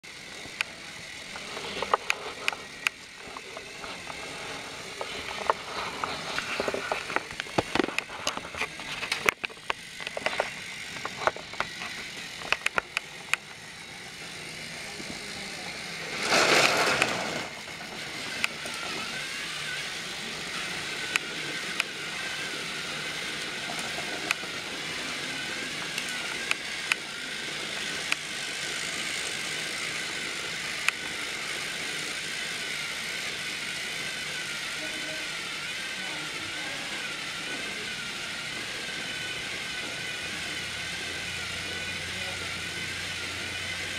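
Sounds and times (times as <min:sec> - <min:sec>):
toy train motors whirring: 0:00.0 - 0:43.9
sharp plastic clicks and clatters: 0:00.4 - 0:13.7, 0:16.3 - 0:19.1, 0:20.5 - 0:22.0, 0:23.2 - 0:32.2.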